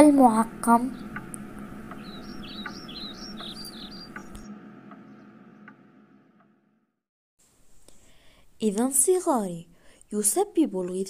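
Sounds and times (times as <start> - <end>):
faint steady hum: 0.0 - 6.8
scattered clicks: 1.0 - 2.8.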